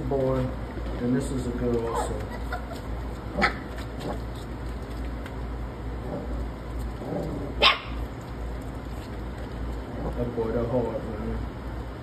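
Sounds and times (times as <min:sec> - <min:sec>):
low steady hum: 0:00.0 - 0:12.0
puppy giving short high barks: 0:07.6 - 0:08.0.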